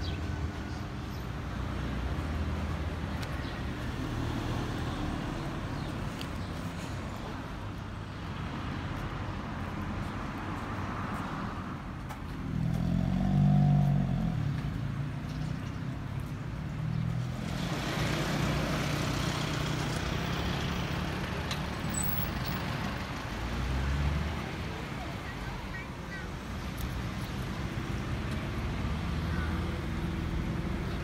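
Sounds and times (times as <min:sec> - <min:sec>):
cars and trucks passing: 0:00.0 - 0:31.0
vehicle engine: 0:12.0 - 0:31.0.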